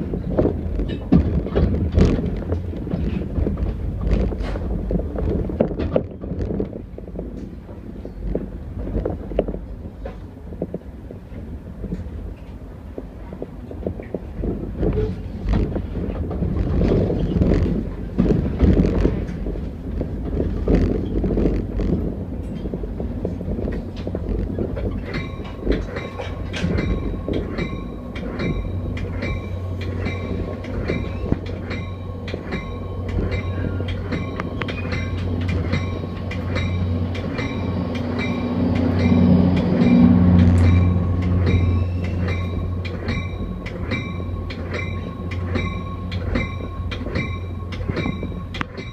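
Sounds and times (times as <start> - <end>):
locomotive engine drone: 0.0 - 48.9
train wheels clicking over rail joints: 0.0 - 48.9
low hum: 14.4 - 48.9.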